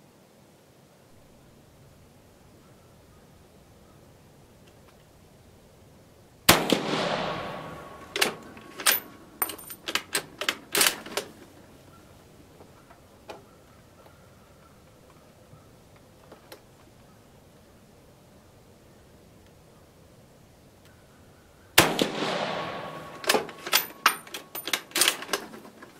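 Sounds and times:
rifle shot: 0:06.5 - 0:09.2, 0:21.8 - 0:24.3
rifle bolt metallic clicks: 0:06.5 - 0:11.3, 0:21.8 - 0:25.5.

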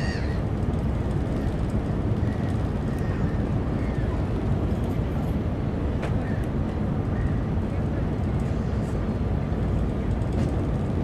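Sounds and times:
faint gull calls: 0:00.0 - 0:00.4
low ferry rumble: 0:00.0 - 0:11.0.

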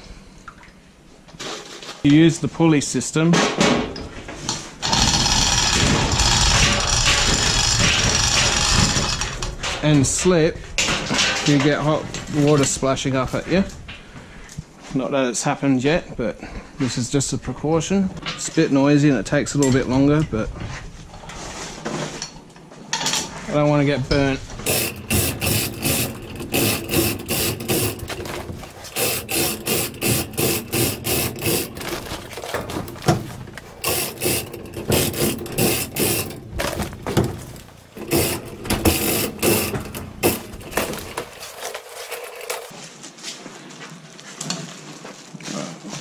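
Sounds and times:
chain rattling through pulley: 0:04.8 - 0:09.6, 0:24.6 - 0:37.3, 0:38.0 - 0:42.7
handling noise: 0:24.2 - 0:45.0.

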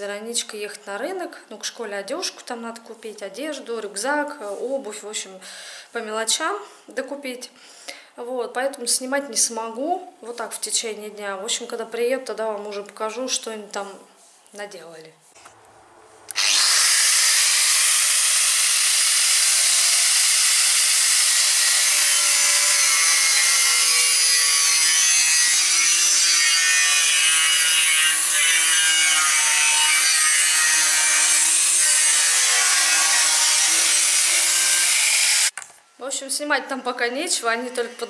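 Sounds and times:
angle grinder grinding steel: 0:16.3 - 0:35.5.

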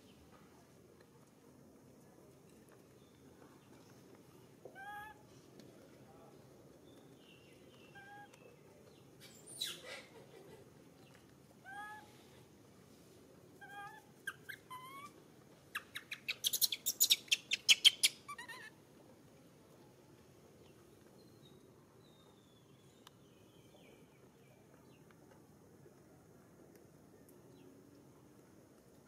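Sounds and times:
infant monkey crying: 0:04.8 - 0:05.2, 0:11.6 - 0:12.1, 0:13.6 - 0:15.1, 0:18.3 - 0:18.7.

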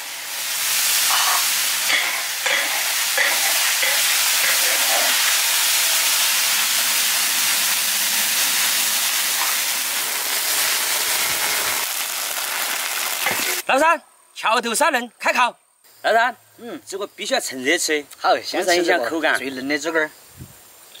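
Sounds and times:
meat sizzling in wok: 0:00.0 - 0:13.6
metal spatula scraping wok: 0:01.1 - 0:05.2.

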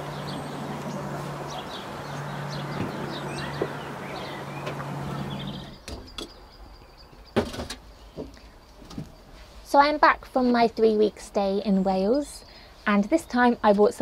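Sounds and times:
steady low hum: 0:00.0 - 0:05.9
birds chirping: 0:00.0 - 0:09.4.

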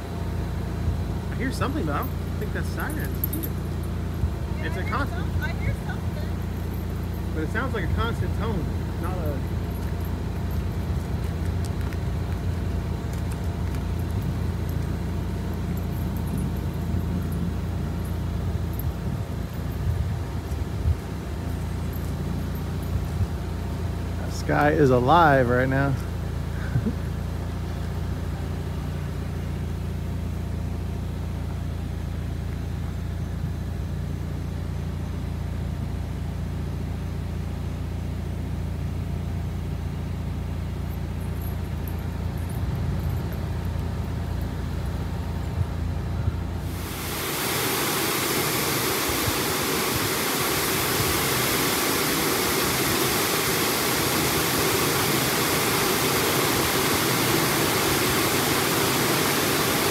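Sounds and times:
low hum: 0:00.0 - 0:59.9
torrential rain pouring: 0:46.7 - 0:59.9.

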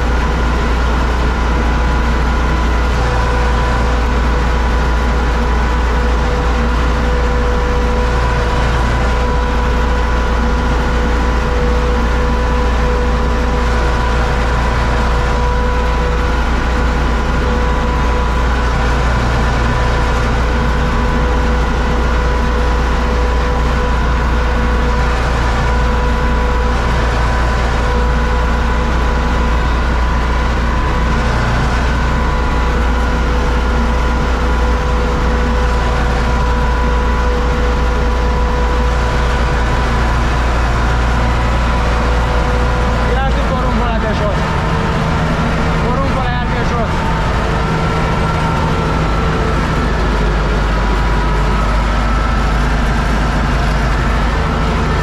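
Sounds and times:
steady whine: 0:00.0 - 0:55.0
tractor diesel engine running: 0:00.0 - 0:55.0.

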